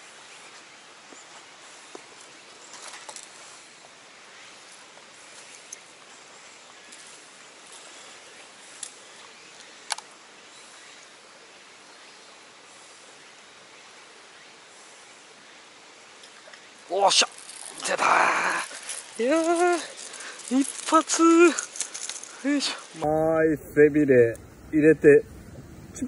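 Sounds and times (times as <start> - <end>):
steady outdoor hiss: 0.0 - 26.0
light ticks: 9.6 - 10.1
footsteps through wet grass: 17.0 - 23.1.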